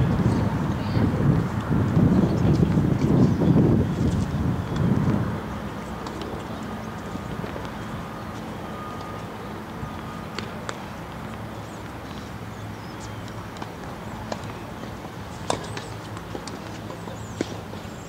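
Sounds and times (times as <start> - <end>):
tennis balls knocking: 13.2 - 17.8.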